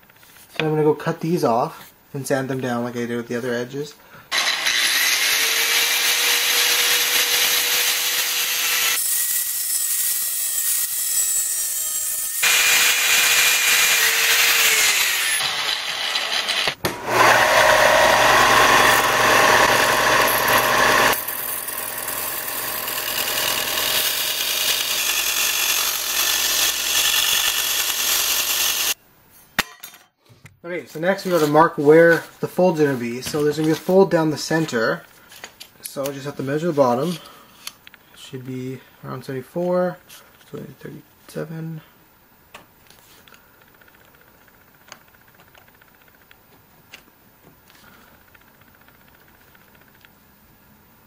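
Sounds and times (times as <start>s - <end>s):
angle grinder cutting sheet steel: 4.3s - 29.0s
belt sander grinding steel: 11.7s - 29.0s.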